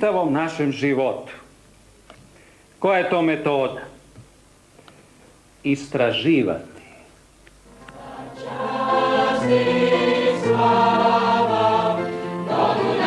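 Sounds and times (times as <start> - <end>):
choir singing a hymn: 7.7 - 13.0.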